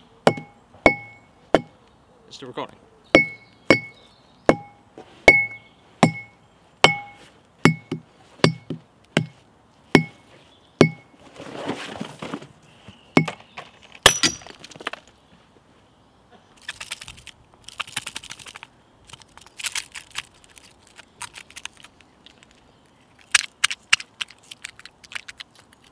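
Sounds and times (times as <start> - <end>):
glass bottle knocking on log: 0.3 - 1.7, 5.3 - 9.3, 14.1 - 14.5
scraping rustle: 11.2 - 12.6.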